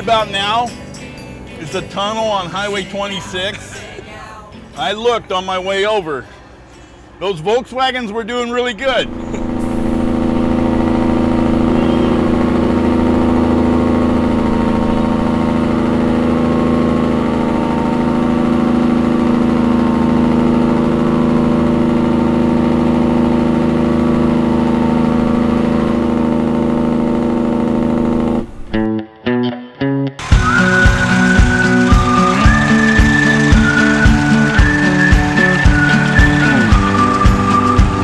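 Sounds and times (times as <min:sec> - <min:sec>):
vehicle engine droning in tunnel: 0:08.9 - 0:28.9, 0:30.2 - 0:38.0.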